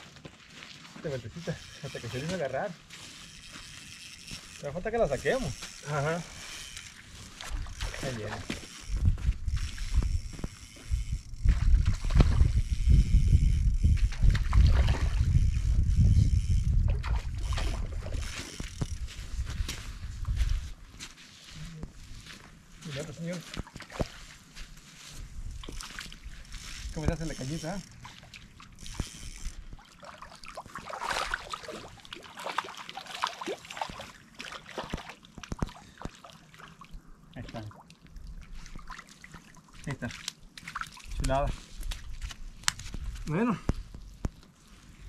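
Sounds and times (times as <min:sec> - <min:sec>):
wind buffeting microphone: 0:07.5 - 0:20.8
fish splashing in water: 0:27.9 - 0:37.0.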